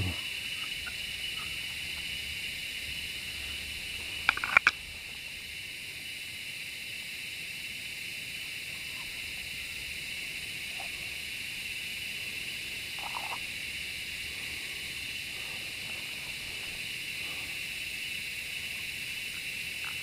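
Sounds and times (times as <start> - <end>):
insects droning: 0.0 - 20.0
sharp clicks: 4.2 - 4.8.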